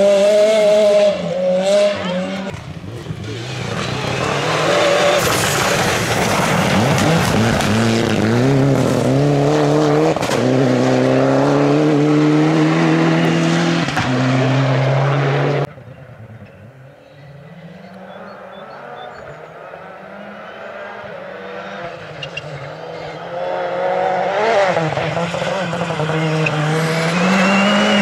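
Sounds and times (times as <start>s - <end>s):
distant engine: 0.0s - 28.0s
rally car engine at full throttle: 0.0s - 28.0s
tyres on gravel: 2.5s - 9.1s.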